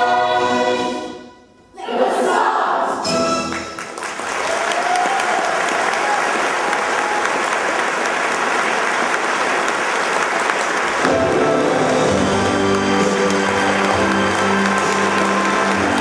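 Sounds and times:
musical backing track: 2.9s - 4.2s, 10.9s - 16.0s
audience applauding: 3.5s - 16.0s.

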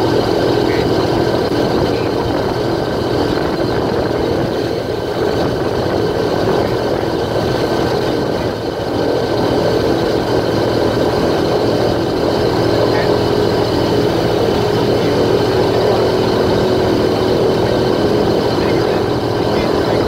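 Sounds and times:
airboat engine droning: 0.0s - 20.0s.

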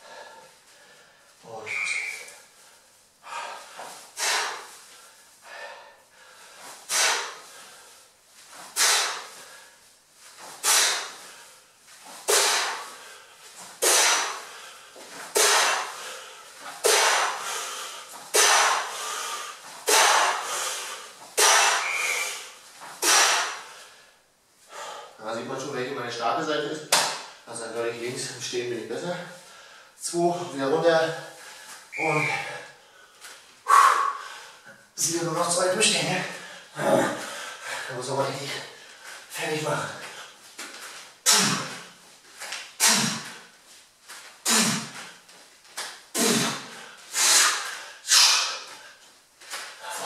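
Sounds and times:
man breathing hard: 0.0s - 25.2s, 29.3s - 30.0s, 31.2s - 35.0s, 36.2s - 40.4s, 46.2s - 50.0s.

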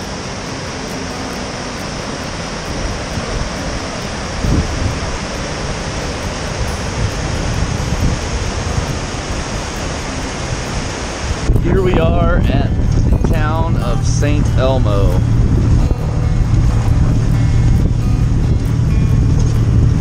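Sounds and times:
water rushing over boulders: 0.0s - 20.0s
wind thumps on microphone: 4.3s - 5.4s, 6.5s - 20.0s.

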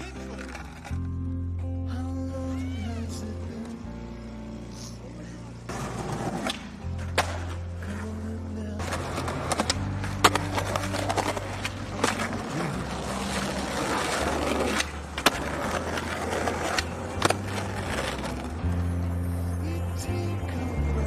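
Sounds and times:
skateboard wheels rolling: 0.0s - 1.2s, 5.2s - 19.5s
skateboard cracks: 5.9s - 7.6s, 8.8s - 18.5s.

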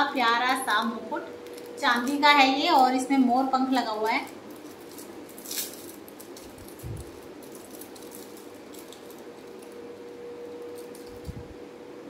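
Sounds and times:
plastic packet crinkling: 0.0s - 11.4s
faint steady hum: 0.0s - 12.0s.

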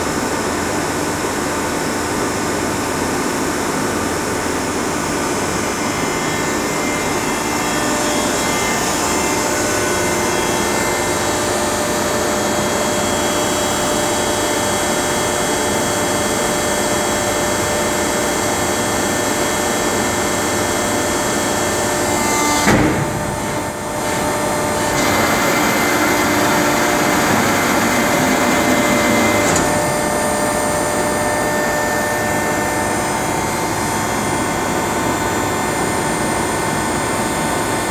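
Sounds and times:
baler machine droning: 4.1s - 37.8s
hydraulic unit tones: 20.6s - 34.8s
sharp mechanical knock: 22.6s - 23.8s.

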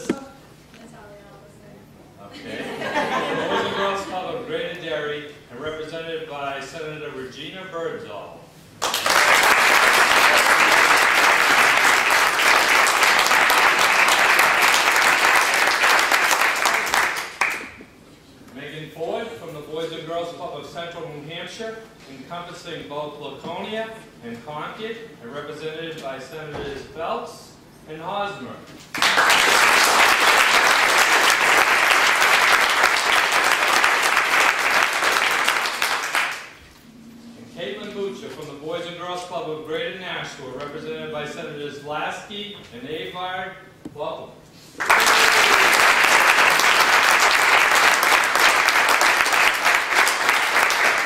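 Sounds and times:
crowd applauding: 8.8s - 17.8s, 29.0s - 36.6s, 44.8s - 51.0s.

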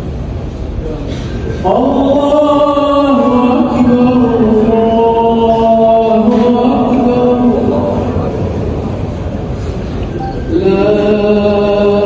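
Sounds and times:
low background noise: 0.0s - 12.0s
unaccompanied sung vocal: 1.6s - 8.5s, 10.4s - 12.0s.

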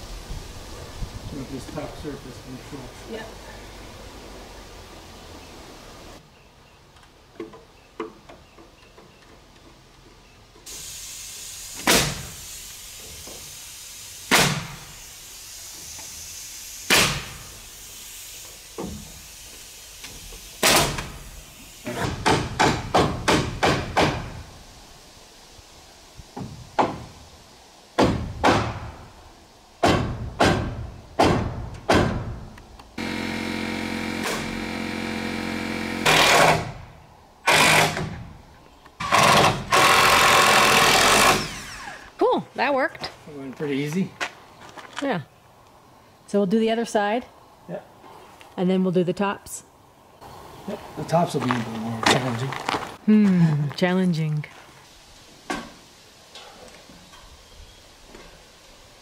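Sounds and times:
cordless drill running: 33.0s - 36.6s, 39.0s - 42.1s.

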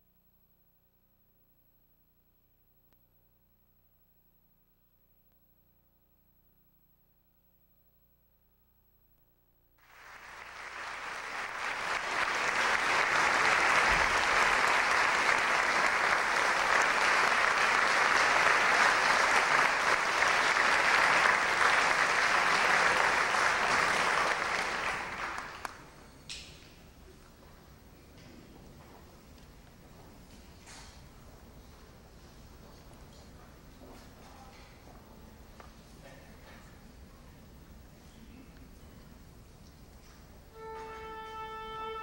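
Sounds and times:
audience applauding: 9.8s - 26.0s.

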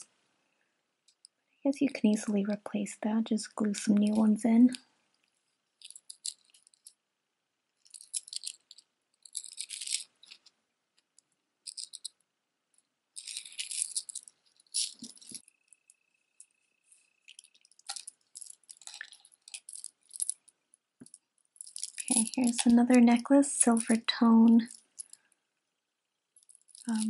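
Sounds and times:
metal chains jingling: 9.3s - 10.4s, 13.2s - 15.4s.

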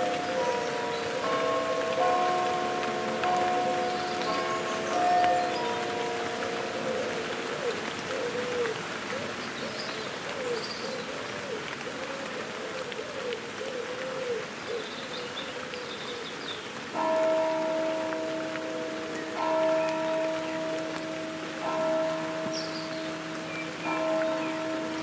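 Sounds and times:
bells ringing: 0.0s - 7.6s, 17.0s - 25.0s
light rain falling: 0.0s - 25.0s
distant bird calls: 21.7s - 25.0s.

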